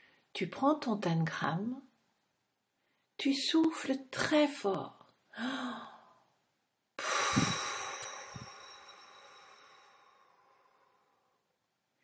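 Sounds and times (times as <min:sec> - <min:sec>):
breath blown into microphone: 0:07.0 - 0:11.1
person drawing breath: 0:07.0 - 0:11.4.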